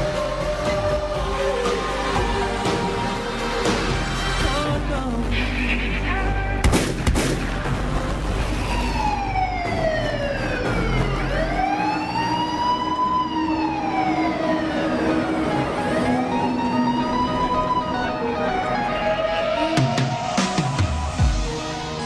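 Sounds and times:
wailing siren: 0.0 - 3.2, 8.4 - 21.2.

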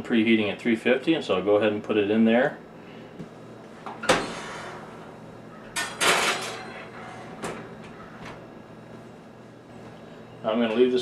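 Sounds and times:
oven door clunk: 4.0 - 4.7.

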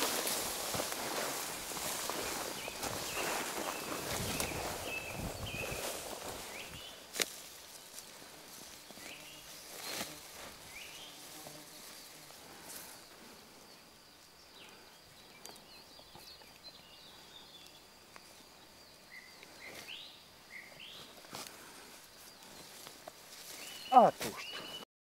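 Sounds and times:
rustling through wheat: 0.0 - 13.2, 20.9 - 24.8
birds chirping: 0.0 - 24.9.

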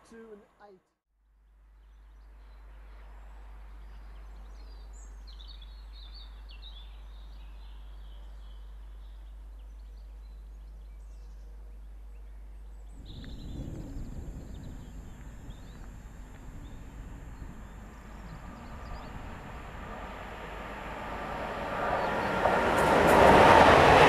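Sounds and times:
small birds chirping: 1.8 - 20.0
wind rumble on microphone: 1.9 - 24.0.

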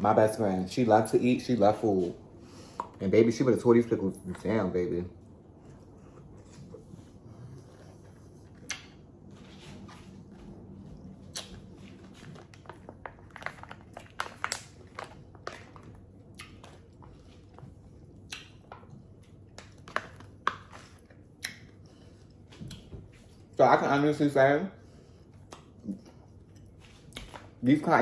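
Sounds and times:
person chewing crunchy pickles: 5.2 - 9.3, 10.7 - 23.6.

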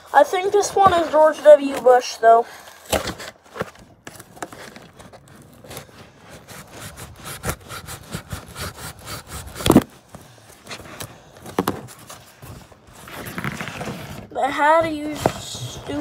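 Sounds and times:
cardboard scraping and rustling: 0.3 - 8.8, 9.4 - 16.0
packing tape ripping off box: 9.4 - 10.0.

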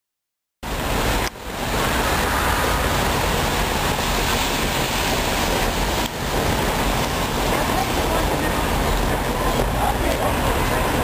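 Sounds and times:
traffic on wet pavement: 0.6 - 11.0.

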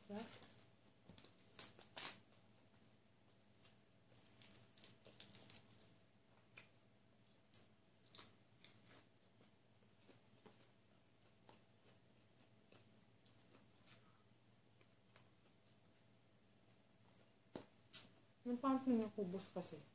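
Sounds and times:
lettuce leaf tearing: 1.2 - 2.2, 4.2 - 5.9.

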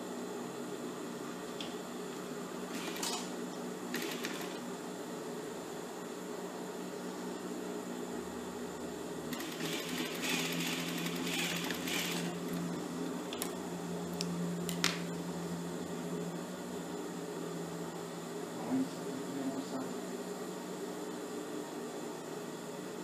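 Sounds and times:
sewing machine motor hum: 2.7 - 3.3, 3.9 - 4.7, 9.3 - 13.6
sewing machine stitching: 2.7 - 3.3, 3.9 - 4.6, 9.3 - 12.4.

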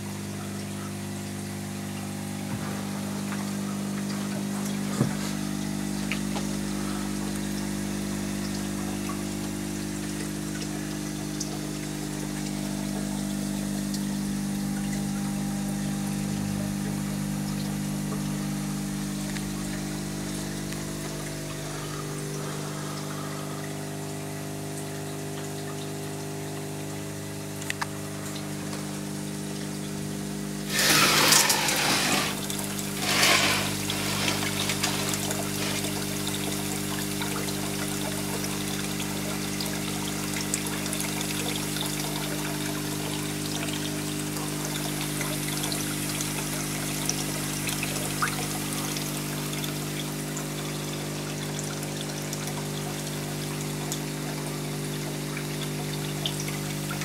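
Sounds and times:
electric pump humming: 0.0 - 57.0
water drip clicks: 19.2 - 20.0, 24.8 - 28.9
spray hissing on glass: 30.7 - 32.4.

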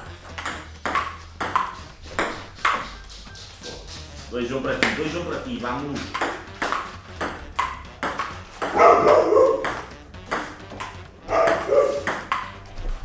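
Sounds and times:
table tennis ball clicking: 0.4 - 1.8, 6.1 - 12.6.

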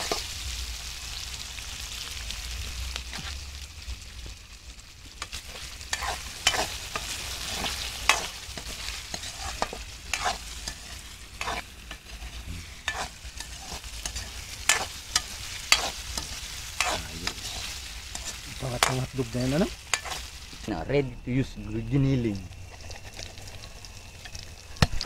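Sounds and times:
vegetables sizzling in oil: 0.0 - 25.0
metal ladle scraping wok: 5.2 - 20.7.

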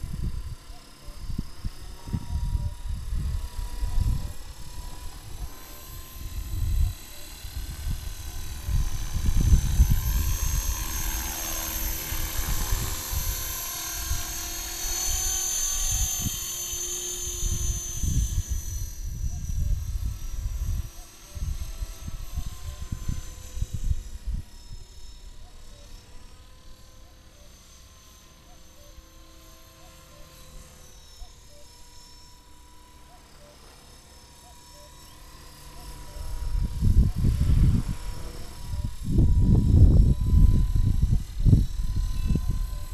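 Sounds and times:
wind buffeting microphone: 0.0 - 14.4, 17.2 - 24.6, 36.2 - 42.9
rc helicopter motor whine: 0.0 - 42.9
rotor blades whirring: 0.0 - 42.9.

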